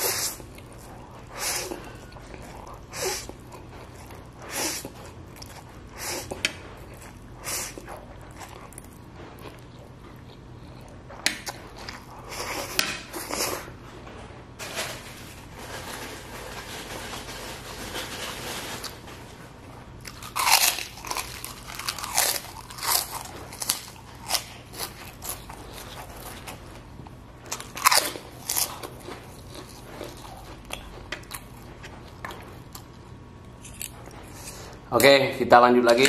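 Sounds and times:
chewing noodles: 0.0 - 13.8
cracker crunching: 20.0 - 34.8.

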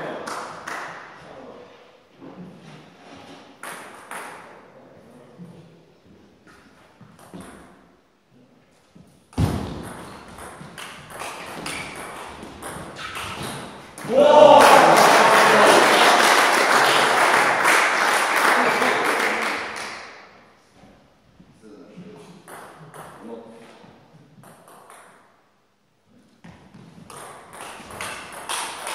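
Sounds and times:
people shouting: 14.0 - 16.2
crowd noise: 14.0 - 20.1.

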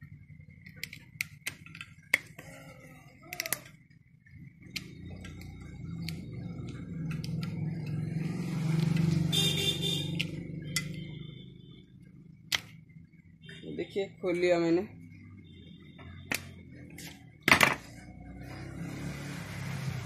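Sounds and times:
vehicle engine rumble passing: 4.2 - 13.4, 14.7 - 20.0.

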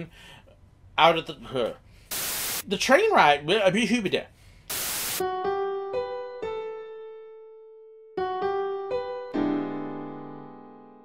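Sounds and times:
piano jingle: 5.2 - 11.0.

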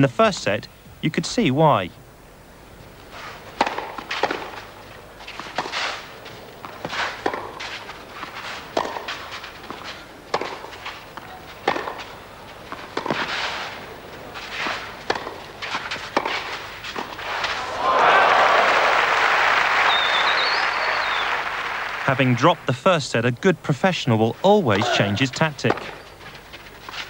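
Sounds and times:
tennis ball hit by rackets: 3.6 - 4.6, 6.6 - 12.1, 12.8 - 13.7, 14.4 - 17.7, 24.8 - 26.0
shoes sliding on clay: 5.2 - 11.0, 11.8 - 17.7, 26.2 - 27.0.

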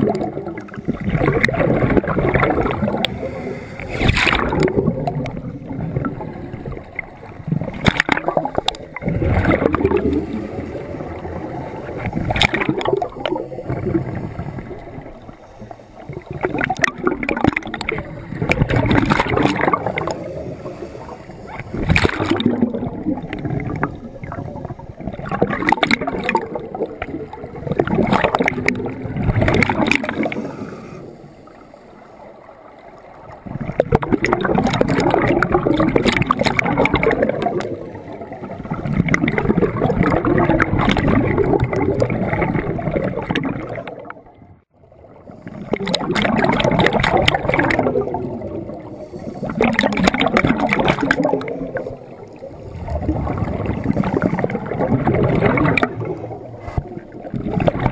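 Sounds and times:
regulator air bubbling underwater: 0.0 - 57.9.

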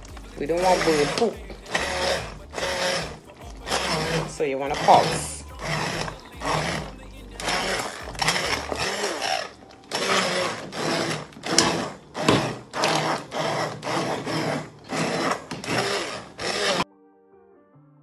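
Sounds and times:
faint guitar music: 0.0 - 10.0
immersion blender bursts: 0.0 - 16.8.

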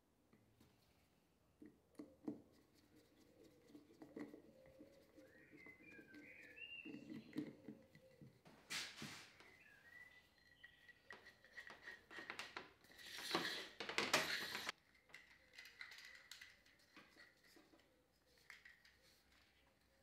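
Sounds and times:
cord rubbing through wood: 2.0 - 9.6, 10.5 - 14.8
cord rustling and scraping: 10.8 - 20.0.

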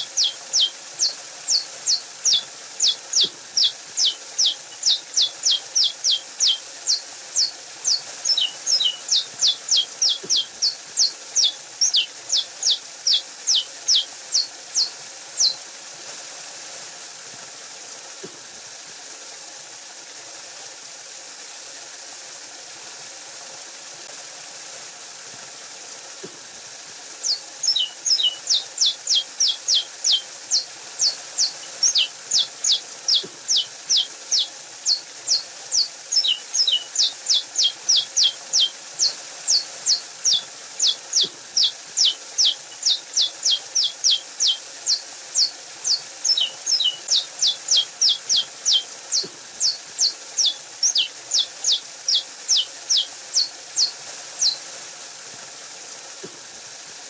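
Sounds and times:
finch singing high notes: 0.0 - 15.6, 27.2 - 54.6
faint hiss: 0.0 - 57.0.

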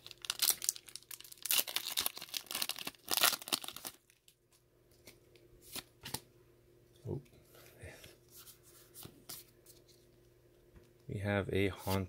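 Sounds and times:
foil wrapper tearing and crinkling: 0.0 - 4.3.

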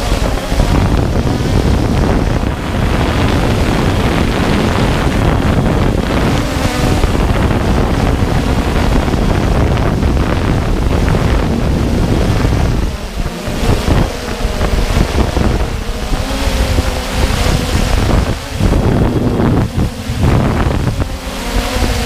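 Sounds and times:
drone motors whirring: 0.0 - 22.0
wind buffeting microphone: 0.0 - 22.0.

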